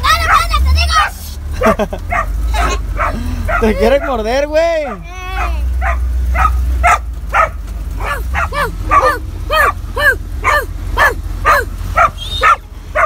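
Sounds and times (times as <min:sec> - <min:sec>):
dog barking: 0:00.2 - 0:01.2, 0:02.1 - 0:13.0.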